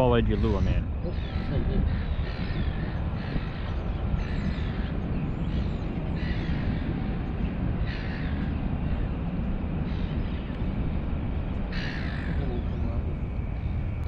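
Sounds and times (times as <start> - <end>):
low rumble: 0.0 - 14.0
crow cawing: 0.4 - 5.6, 6.2 - 7.2, 7.8 - 9.0, 11.7 - 12.8.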